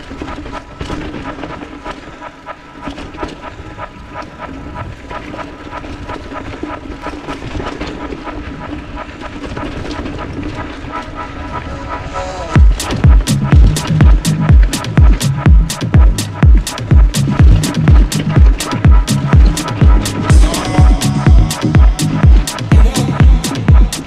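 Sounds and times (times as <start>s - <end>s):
bike rattling and clicking: 0.0s - 11.7s, 12.6s - 24.0s
bike tyres running over dirt: 0.0s - 11.7s
steady buzzing whine: 0.0s - 24.0s.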